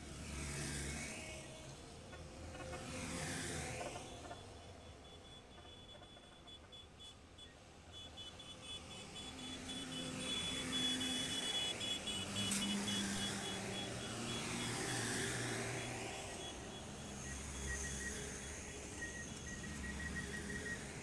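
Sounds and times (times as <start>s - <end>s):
diesel engines running: 10.1s - 21.0s
rapid high-pitched beeping: 16.2s - 21.0s.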